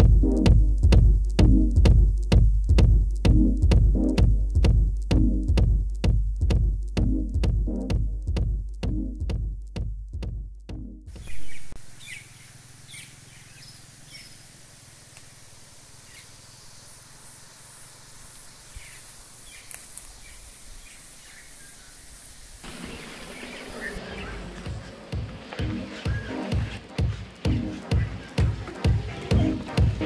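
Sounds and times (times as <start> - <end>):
bird chirps: 11.1 - 26.8
soft hiss: 11.5 - 25.0
high insect drone: 11.8 - 25.2.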